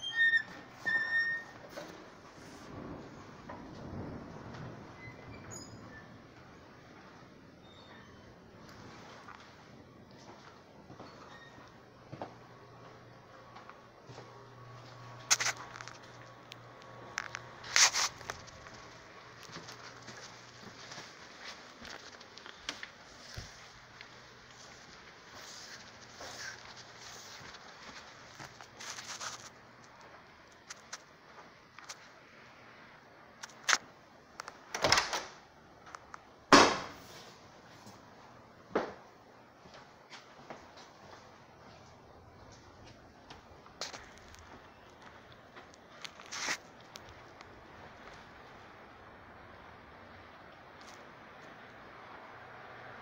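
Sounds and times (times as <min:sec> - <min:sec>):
microphone handling rustle: 0:17.1 - 0:23.9, 0:46.0 - 0:47.2.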